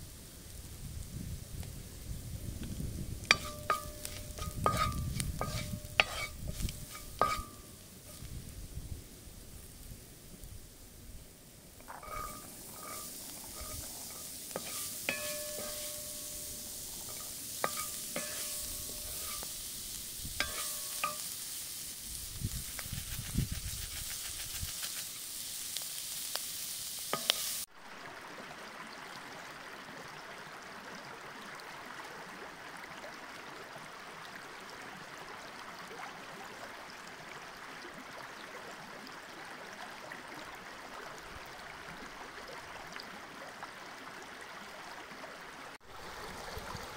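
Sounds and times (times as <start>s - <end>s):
food sizzling in a wok: 0.0s - 10.8s, 11.4s - 28.1s
river running over stones: 2.9s - 8.4s, 11.3s - 26.1s, 27.0s - 46.9s
wooden spoon knocking metal pan: 3.3s - 7.6s, 11.9s - 13.0s, 13.6s - 19.5s, 20.4s - 21.2s.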